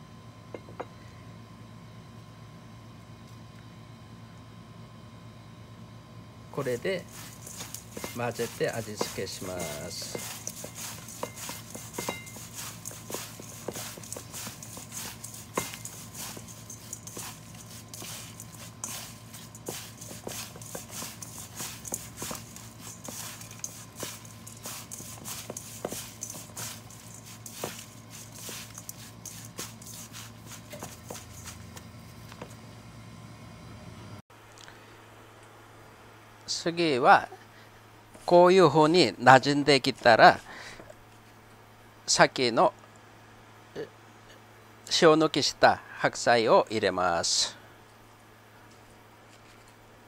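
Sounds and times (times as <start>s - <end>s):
steady low hum: 0.0s - 36.5s
wet rustling of food in bowl: 6.6s - 32.6s.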